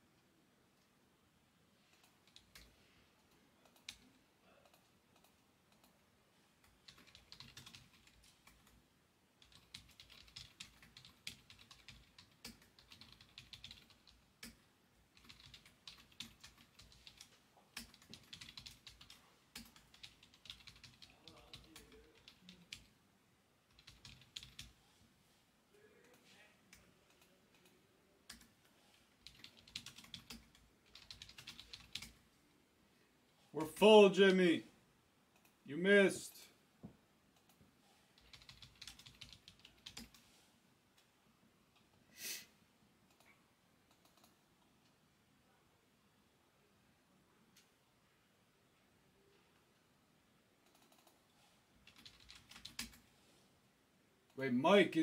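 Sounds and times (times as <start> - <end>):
faint typing on a keyboard: 1.8 - 23.0, 23.6 - 25.1, 25.8 - 32.4, 35.2 - 42.0, 42.9 - 45.2, 47.4 - 48.0, 49.2 - 53.4.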